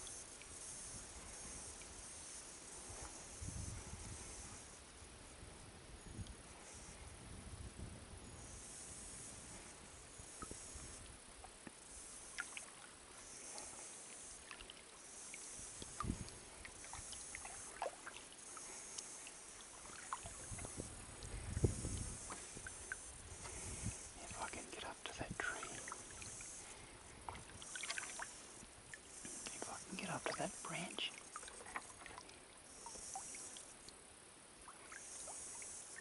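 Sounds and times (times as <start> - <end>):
water drips and ticks: 11.4 - 13.8, 14.4 - 23.4, 24.2 - 34.0
paddle strokes in water: 11.4 - 24.6, 25.4 - 33.8, 34.6 - 36.0
high insect buzzing: 11.8 - 27.0
water moving against hull: 12.2 - 33.7.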